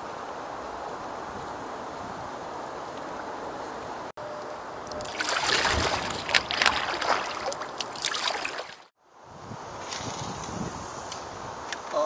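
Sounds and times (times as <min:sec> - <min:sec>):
paddle splashing and dripping: 0:04.8 - 0:08.9
wind on microphone: 0:04.9 - 0:08.5, 0:09.2 - 0:12.0.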